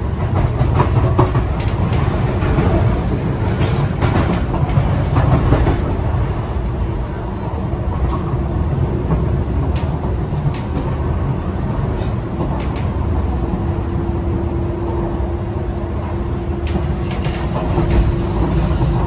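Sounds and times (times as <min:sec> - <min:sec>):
wheels rumbling on rail: 0:00.0 - 0:19.0
sharp clicks: 0:12.6 - 0:12.9.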